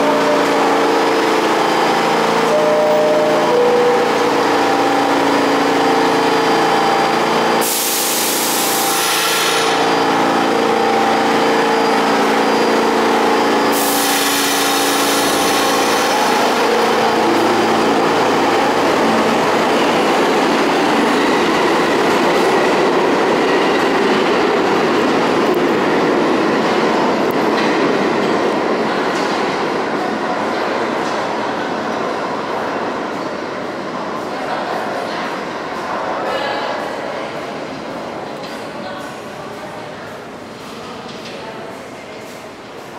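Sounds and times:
train motor hum: 0.0s - 29.0s
train rolling on rails: 0.0s - 42.9s
loud air hiss: 7.6s - 9.9s, 13.7s - 16.4s.

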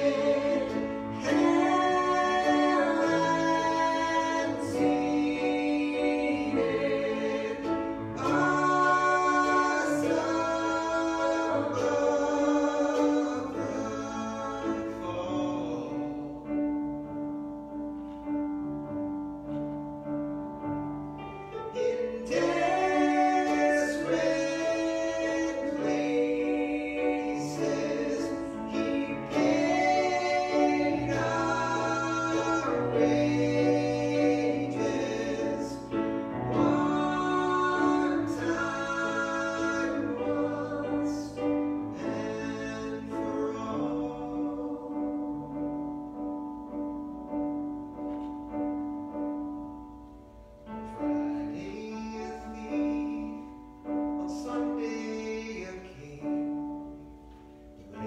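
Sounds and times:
person singing: 0.0s - 16.7s, 21.6s - 45.8s
piano-style keyboard: 0.0s - 58.0s.

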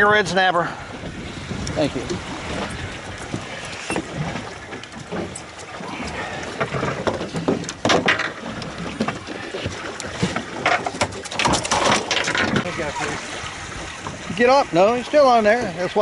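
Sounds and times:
water noise: 0.0s - 16.0s
wind: 0.0s - 16.0s
fishing gear knocking in a boat: 2.1s - 12.7s.

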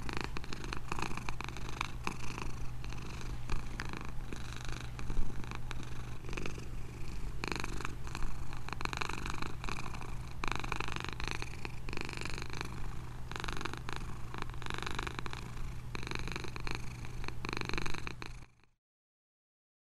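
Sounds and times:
cat purring: 0.0s - 18.8s.

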